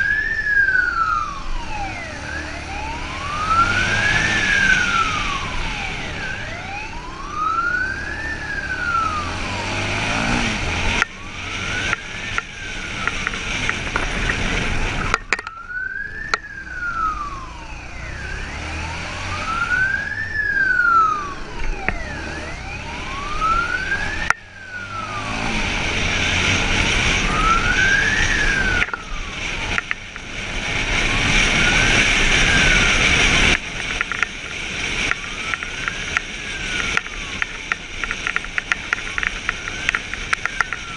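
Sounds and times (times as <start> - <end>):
motorcycle engine: 0.0 - 40.9
police siren wailing: 0.0 - 40.9
wind noise: 18.6 - 40.9.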